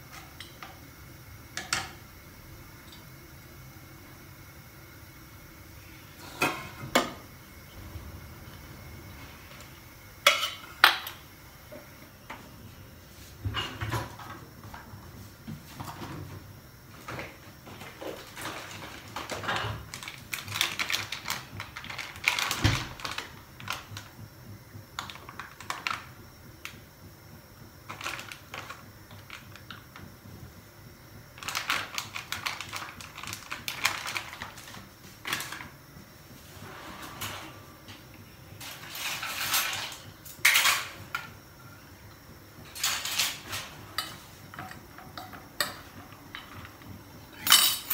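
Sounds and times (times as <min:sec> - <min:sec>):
plastic packet crinkling: 0:19.9 - 0:23.8, 0:27.9 - 0:29.4, 0:31.4 - 0:34.8.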